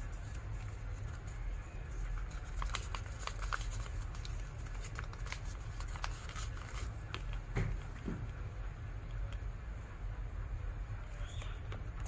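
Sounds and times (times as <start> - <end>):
paper crinkling: 0.0 - 8.0
steady low hum: 0.0 - 12.0.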